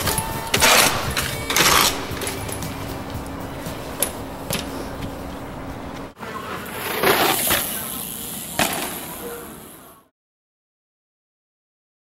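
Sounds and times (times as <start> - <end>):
bike tyre noise on pavement: 0.0 - 10.1
sharp clack of bike: 6.8 - 9.2.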